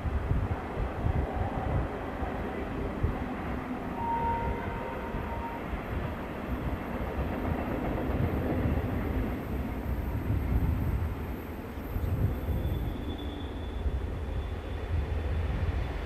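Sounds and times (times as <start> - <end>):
diesel locomotive engines rumbling: 0.0 - 16.0
thin high tone: 4.0 - 5.8.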